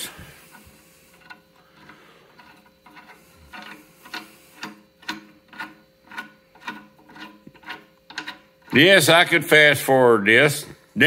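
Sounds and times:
bolt threading metallic ticks: 0.5 - 8.9.

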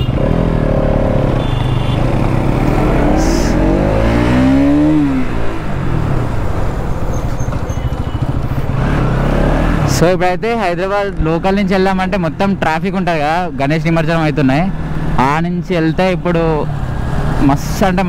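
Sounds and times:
motorcycle engine accelerating: 0.0 - 10.2.

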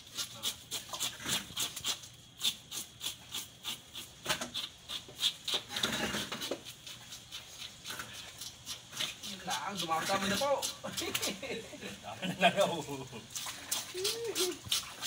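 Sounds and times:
knife scraping fish scales: 0.0 - 11.4.

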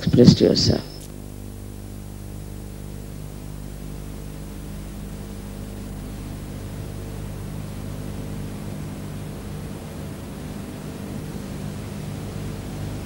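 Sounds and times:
videotape hiss: 0.0 - 6.3
low electrical hum: 0.0 - 13.0.

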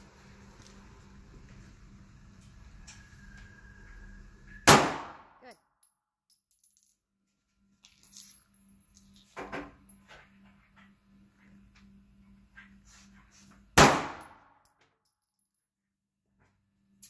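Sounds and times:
pistol shot ringing: 4.7 - 5.3, 13.8 - 14.4.

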